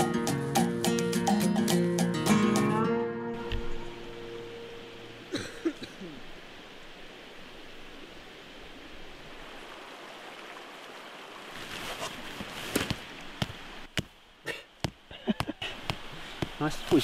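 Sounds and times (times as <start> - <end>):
stream running: 0.0 - 17.0
tent fabric rustling: 11.4 - 14.1, 15.7 - 17.0.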